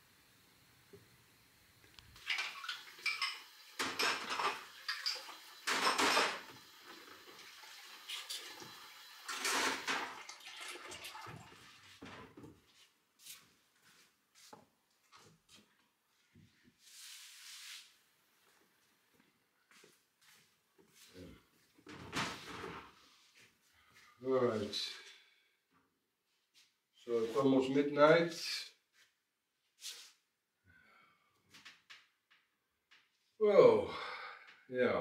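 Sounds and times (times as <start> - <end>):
dishes clinking in a sink: 2.2 - 6.5
water running from a tap: 2.2 - 12.0.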